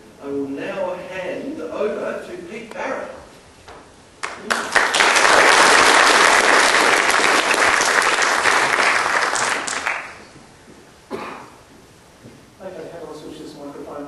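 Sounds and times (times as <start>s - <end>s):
audience applauding: 4.2s - 10.4s.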